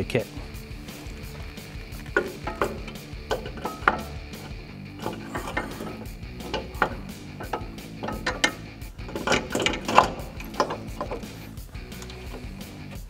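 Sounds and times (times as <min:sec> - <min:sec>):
metal clinks and knocks: 0:00.6 - 0:13.0.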